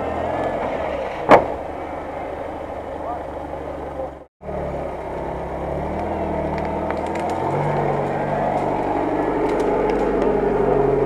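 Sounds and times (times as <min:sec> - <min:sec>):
off-road vehicle engine under load: 0:00.0 - 0:11.0
sharp clicks and cracks: 0:06.0 - 0:08.0, 0:09.4 - 0:10.3.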